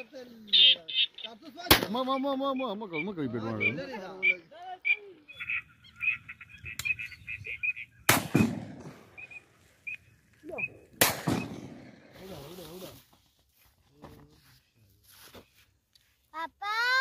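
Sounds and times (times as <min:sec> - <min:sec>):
duck calls: 0:00.0 - 0:08.2
shotgun shots with echo: 0:01.7 - 0:02.0, 0:08.1 - 0:09.2, 0:11.0 - 0:12.2.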